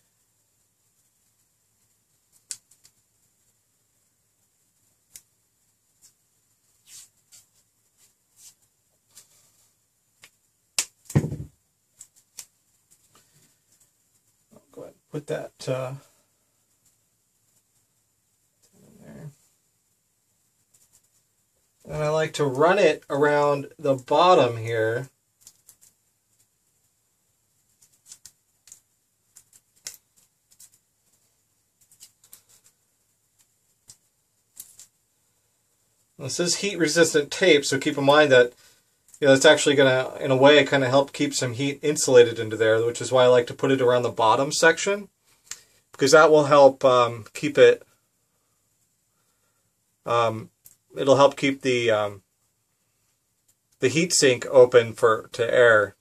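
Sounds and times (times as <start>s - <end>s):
tape and small parts clicking: 2.3s - 3.0s, 5.1s - 5.3s, 11.9s - 14.3s, 20.6s - 21.3s, 25.3s - 26.6s, 27.6s - 35.0s, 39.0s - 39.2s, 50.5s - 50.9s
knock against workbench: 11.2s - 11.5s
tape crinkling: 31.8s - 34.9s.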